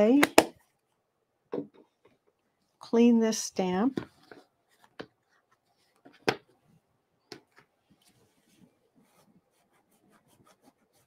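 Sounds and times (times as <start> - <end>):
faint rubbing: 7.8 - 11.0.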